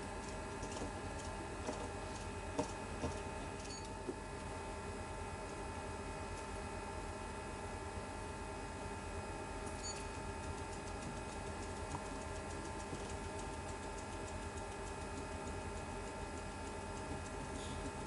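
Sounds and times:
faint regular ticking: 0:00.2 - 0:01.4, 0:09.6 - 0:18.0.

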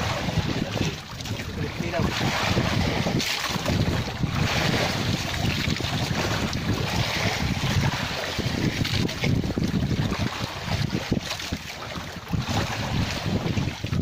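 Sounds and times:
waves washing against boat hull: 0:00.0 - 0:14.0
wind gusting across microphone: 0:00.0 - 0:14.0.

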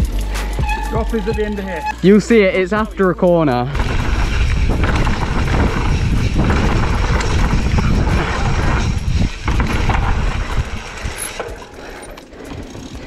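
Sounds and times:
bike rattling and clicking: 0:00.0 - 0:13.0
tyres rumbling over dirt: 0:03.7 - 0:13.0
wind on microphone: 0:03.8 - 0:11.5
bicycle freewheel ticking: 0:03.8 - 0:13.0.

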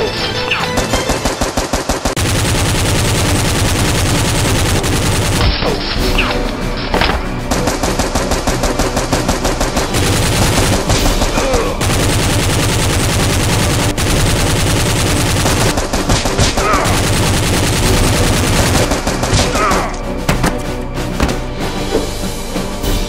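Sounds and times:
rapid automatic gunfire: 0:00.8 - 0:05.4, 0:07.3 - 0:20.0.

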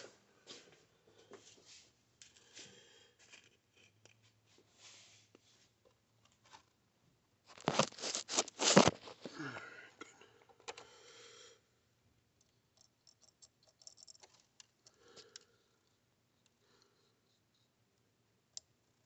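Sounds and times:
faint rustles and small knocks: 0:00.0 - 0:06.8
plastic jar clattering and scraping: 0:07.5 - 0:09.3.

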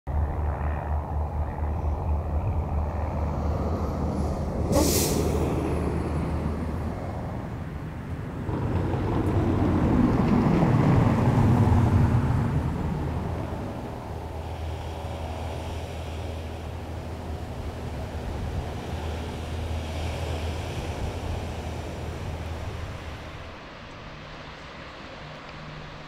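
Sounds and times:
heavy vehicle engine rumbling: 0:00.1 - 0:26.0
vehicle passing: 0:00.2 - 0:26.0
short sharp hiss: 0:04.7 - 0:05.3.

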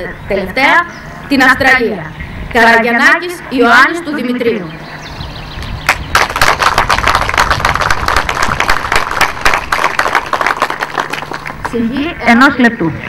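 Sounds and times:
crowd applauding: 0:05.9 - 0:11.8.

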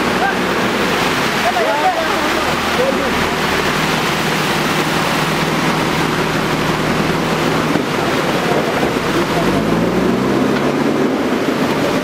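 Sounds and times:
engine running steadily: 0:00.0 - 0:12.0
floodwater rushing: 0:00.0 - 0:12.0.

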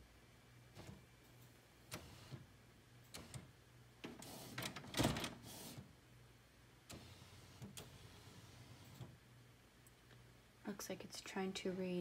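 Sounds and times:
printer mechanical rattle: 0:03.1 - 0:05.8.

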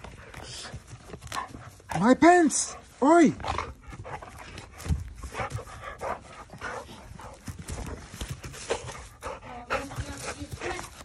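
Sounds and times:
dog huffing breath: 0:02.8 - 0:11.0.

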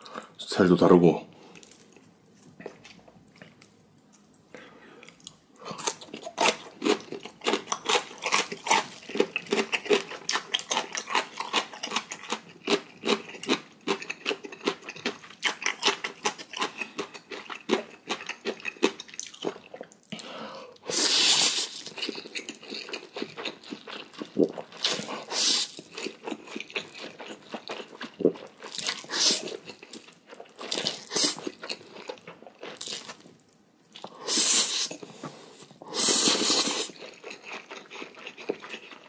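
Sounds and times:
wet chewing and smacking: 0:05.0 - 0:20.2, 0:21.8 - 0:33.3, 0:36.9 - 0:39.0
slurping noodles: 0:35.9 - 0:37.0.

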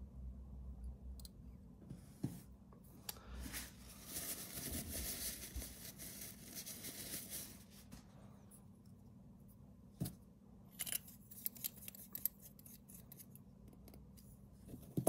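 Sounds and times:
soft rustling and rubbing: 0:03.4 - 0:08.2.

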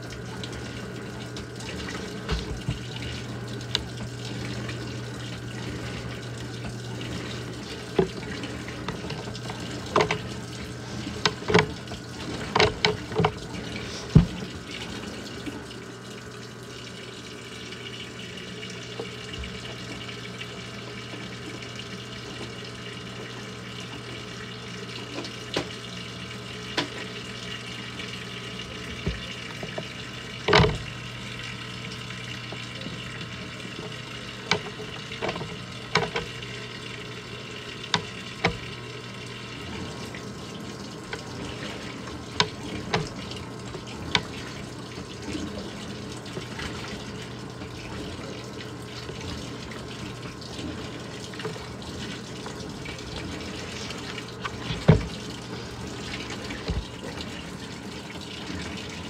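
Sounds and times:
water pouring into washer tub: 0:00.0 - 0:59.0.

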